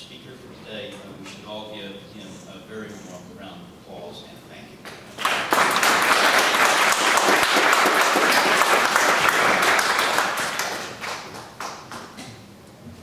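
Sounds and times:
audience applauding: 5.2 - 12.2.

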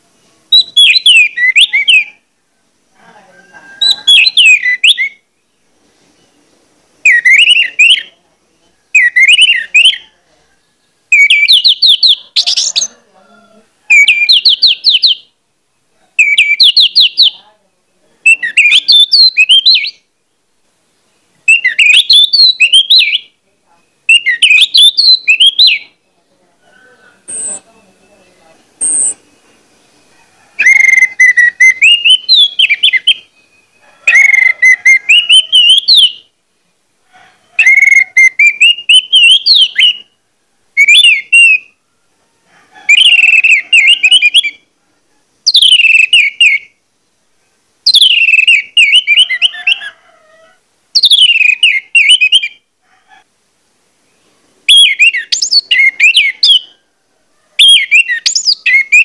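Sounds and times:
thrush singing whistled phrases: 0.5 - 2.2, 3.8 - 5.4, 7.0 - 8.2, 8.9 - 10.1, 11.1 - 12.9, 13.9 - 15.3, 16.2 - 17.4, 18.2 - 20.1, 21.3 - 23.3, 24.0 - 26.0, 28.8 - 29.4, 30.6 - 36.3, 37.6 - 40.2, 40.8 - 41.8, 42.9 - 44.6, 45.5 - 46.8, 47.8 - 50.0, 51.0 - 52.6, 54.7 - 56.8, 57.6 - 59.0.

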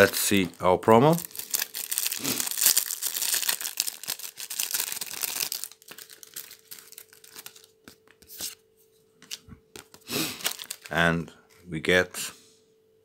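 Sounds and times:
plastic wrapper tearing and crinkling: 0.0 - 8.1, 9.8 - 11.0
card clicks and rustles: 1.2 - 8.6, 9.2 - 11.0.

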